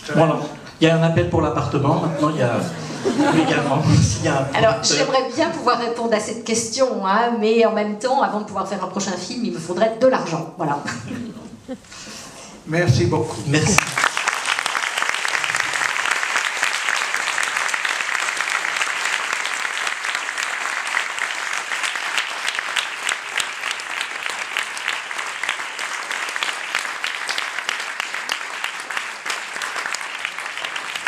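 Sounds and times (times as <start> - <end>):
audience applauding: 13.5 - 31.0.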